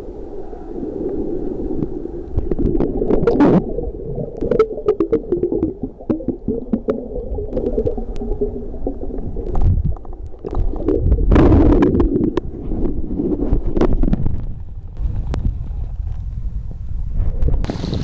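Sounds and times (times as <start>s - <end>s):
underwater rumbling and gurgling: 0.0s - 18.0s
rush of water: 17.6s - 18.0s.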